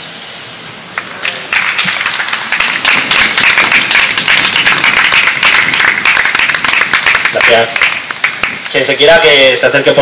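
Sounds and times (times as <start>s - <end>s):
people applauding: 1.0s - 8.8s.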